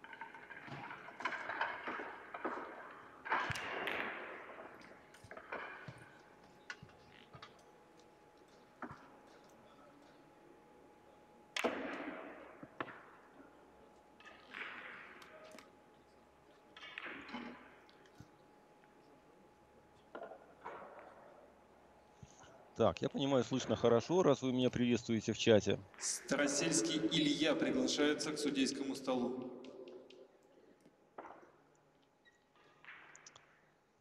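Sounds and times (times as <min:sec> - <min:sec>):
billiard balls clacking: 0:00.0 - 0:07.6.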